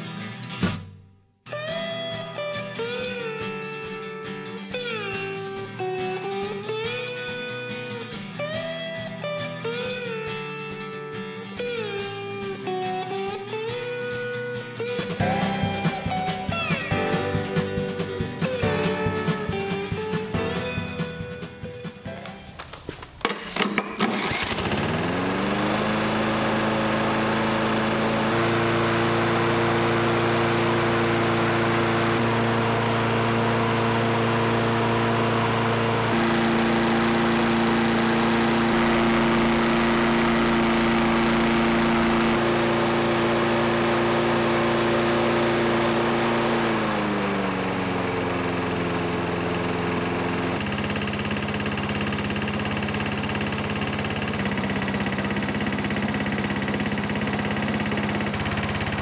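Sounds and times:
lawn mower engine running: 13.7s - 59.0s.

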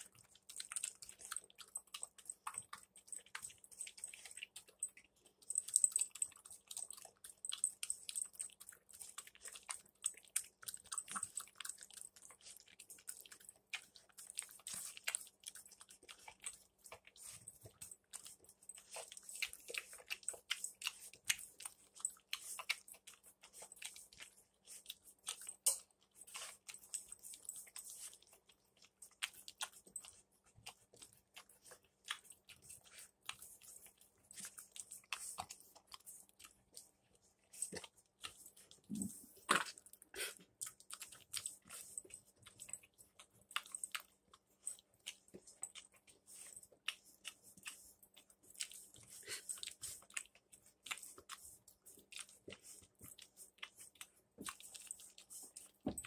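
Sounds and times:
dog crunching kibble in metal bowl: 0.0s - 28.4s.

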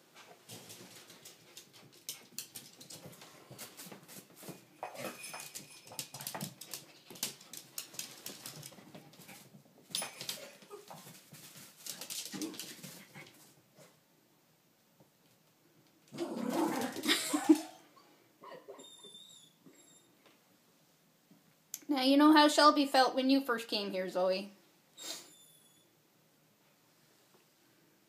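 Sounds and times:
dog claws clicking on floor: 0.5s - 9.2s, 9.9s - 13.3s
dog whimper: 18.5s - 20.1s.

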